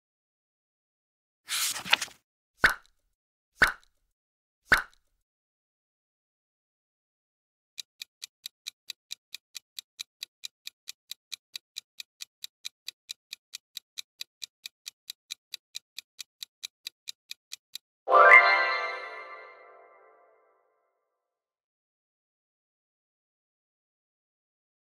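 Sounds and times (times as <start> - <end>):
fast clock ticking: 7.8 - 17.9
bright chime: 18.1 - 20.1.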